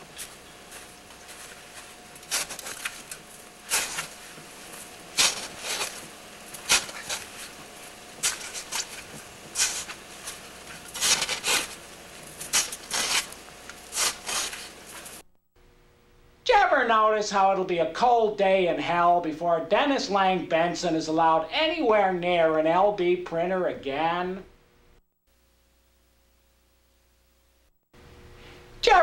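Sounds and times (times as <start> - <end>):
metal shovel scraping snow: 0.0 - 15.2.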